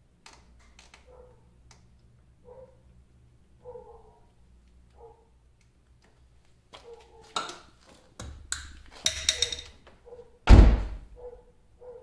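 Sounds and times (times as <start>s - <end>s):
heavy door thunk: 10.5s - 11.1s.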